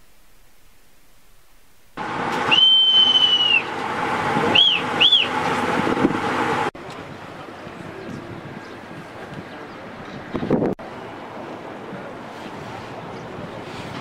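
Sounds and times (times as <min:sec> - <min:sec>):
bosun's pipe whistling: 0:02.5 - 0:03.7, 0:04.5 - 0:05.4
wind noise: 0:04.2 - 0:10.8.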